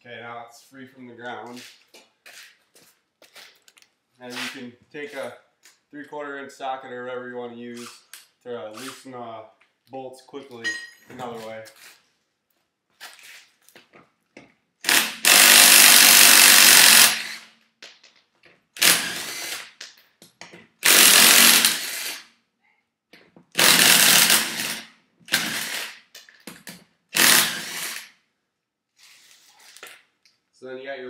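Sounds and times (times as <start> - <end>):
impact wrench spinning lug nuts: 14.8 - 17.5, 18.8 - 19.8, 20.8 - 22.2, 23.6 - 26.4, 27.2 - 28.1.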